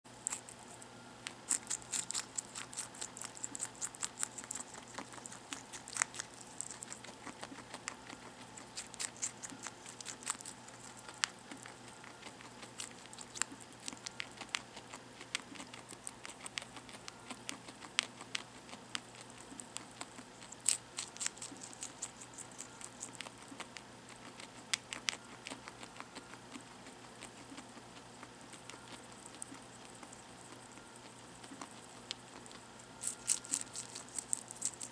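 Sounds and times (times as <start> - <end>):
guinea pig chewing: 0.0 - 34.9.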